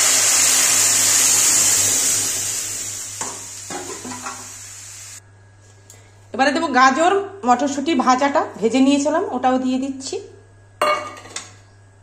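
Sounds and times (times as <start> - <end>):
loud sizzle of food in oil: 0.0 - 5.2.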